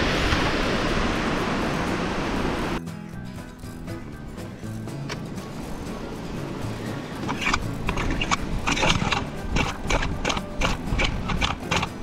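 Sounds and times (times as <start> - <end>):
kick-start lever clacking: 7.3 - 12.0.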